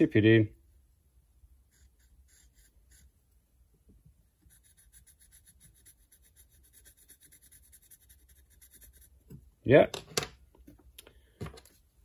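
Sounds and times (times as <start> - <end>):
marker pen scratching on metal: 1.7 - 3.1, 4.5 - 9.2.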